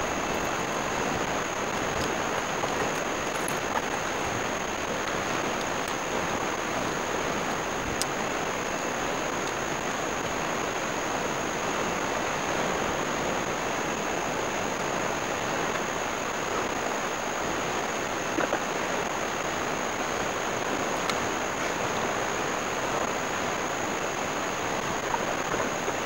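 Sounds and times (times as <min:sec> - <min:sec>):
ocean surf washing ashore: 0:00.0 - 0:26.0.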